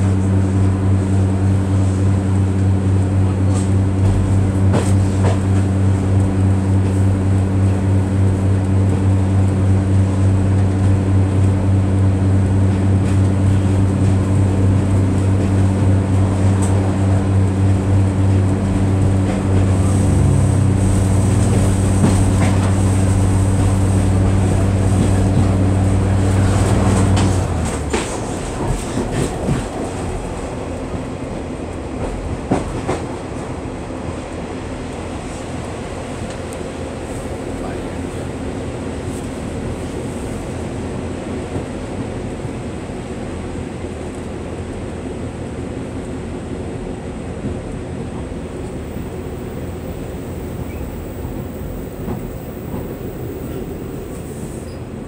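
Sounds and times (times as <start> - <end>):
train rumbling on rails: 0.0 - 55.0
diesel engine droning: 5.8 - 28.8.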